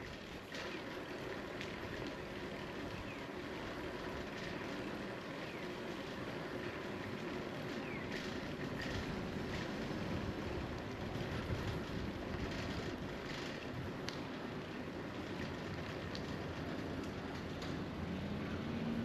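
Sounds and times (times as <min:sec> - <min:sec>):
bicycle tyres rolling on asphalt: 0:00.0 - 0:19.0
wind on microphone: 0:08.8 - 0:13.4.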